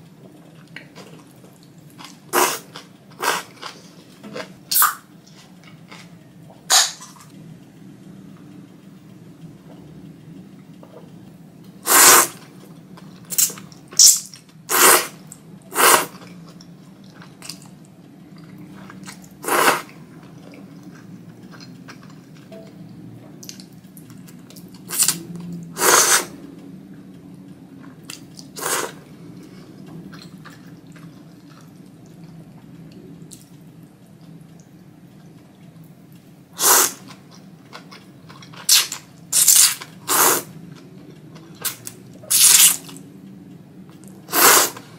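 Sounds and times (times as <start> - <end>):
low steady hum: 0.0 - 44.9
person slurping noodles: 2.4 - 3.6, 11.9 - 12.4, 14.7 - 15.1, 15.7 - 16.1, 19.4 - 19.9, 25.8 - 26.3, 28.6 - 29.0, 36.6 - 37.0, 39.4 - 40.5, 44.3 - 44.8.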